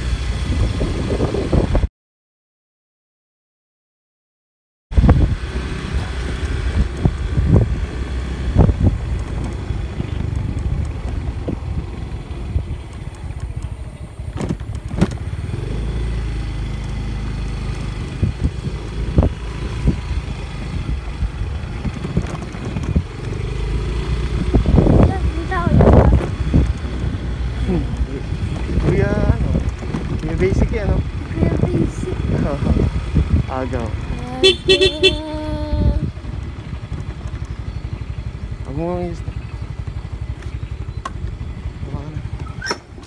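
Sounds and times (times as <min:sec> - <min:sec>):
motorcycle engine rumbling: 0:05.0 - 0:43.0
knocks and jolts over potholes: 0:05.8 - 0:15.9, 0:16.5 - 0:32.8.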